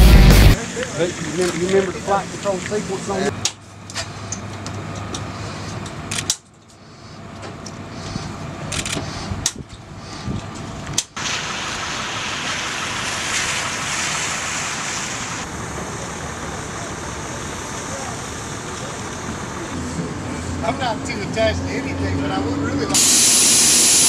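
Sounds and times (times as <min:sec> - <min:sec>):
rushing turbine noise: 0:11.3 - 0:24.0.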